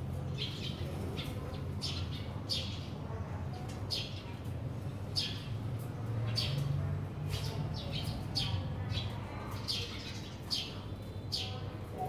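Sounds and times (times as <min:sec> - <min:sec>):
sparrows chirping: 0:00.0 - 0:12.0.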